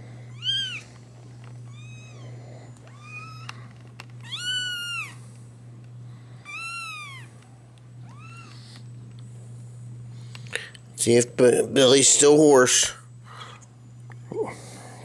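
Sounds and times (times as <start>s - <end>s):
kitten meowing: 0.3s - 0.9s, 1.7s - 2.3s, 2.9s - 3.6s, 4.2s - 5.2s, 6.4s - 7.3s, 8.0s - 8.6s.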